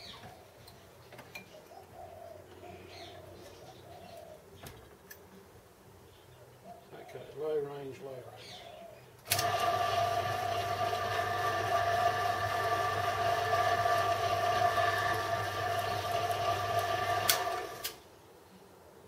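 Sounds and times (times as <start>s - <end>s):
milling machine motor humming: 9.3s - 18.0s.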